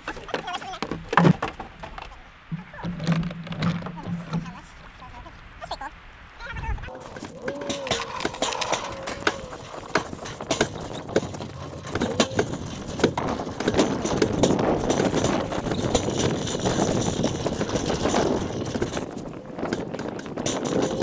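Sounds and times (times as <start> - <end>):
trailer rattling and clanking: 6.9 - 21.0.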